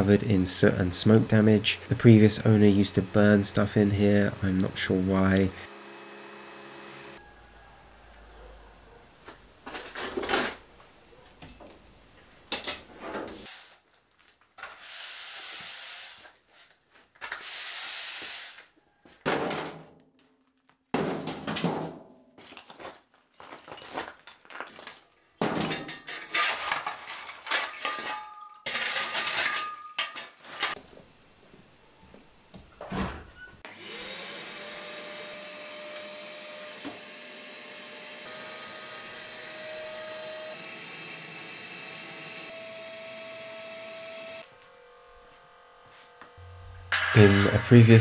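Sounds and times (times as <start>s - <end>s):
stones clattering into wheelbarrow: 22.5s - 30.8s.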